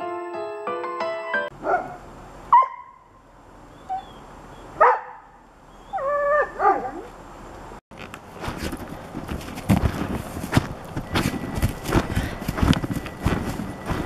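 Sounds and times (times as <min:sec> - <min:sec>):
piano tune: 0:00.0 - 0:01.5
dog barking and yelping: 0:01.6 - 0:03.1, 0:03.8 - 0:07.2.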